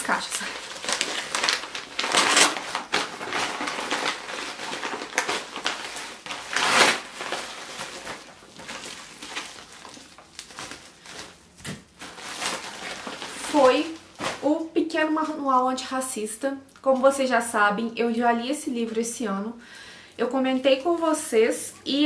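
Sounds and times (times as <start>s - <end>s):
paper and bubble wrap crinkling: 0.0s - 15.5s.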